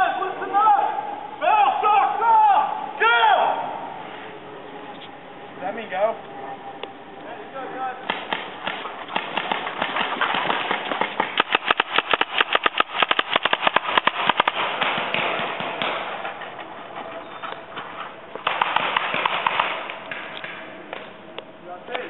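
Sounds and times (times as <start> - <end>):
paintball markers firing: 8.1 - 16.3, 18.4 - 21.1.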